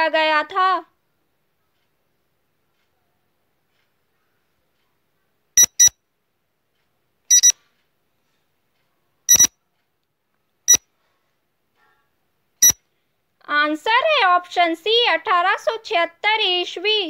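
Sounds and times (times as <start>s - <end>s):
short high electronic beeps: 5.6s - 6.0s, 7.3s - 7.6s, 9.3s - 9.5s.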